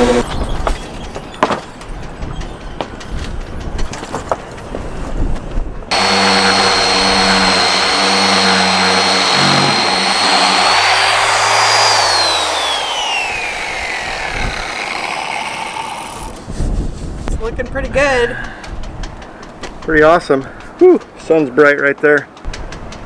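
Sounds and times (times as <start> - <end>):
orbital sander whining: 5.9 - 16.4.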